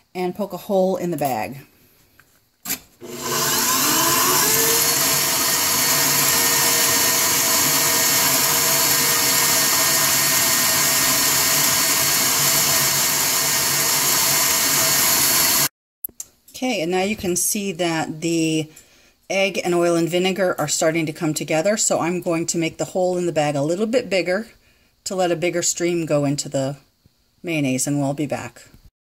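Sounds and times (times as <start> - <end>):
stand mixer motor whisking: 3.0 - 15.7.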